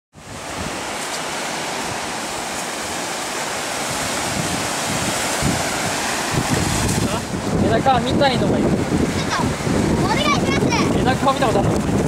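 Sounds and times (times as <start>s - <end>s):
surf breaking on beach: 0.1s - 12.0s
wind on microphone: 0.1s - 12.0s.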